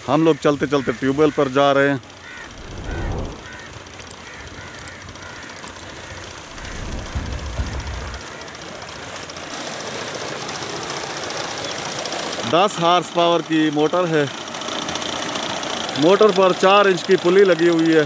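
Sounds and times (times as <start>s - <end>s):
low rumble: 2.4s - 3.8s, 6.4s - 8.3s
electric motor rattling: 6.4s - 8.5s.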